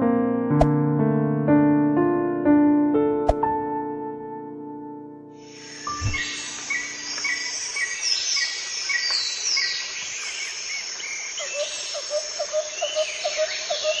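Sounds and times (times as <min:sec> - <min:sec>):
outdoor ambience hiss: 0:05.4 - 0:13.8
birds chirping: 0:05.5 - 0:14.0.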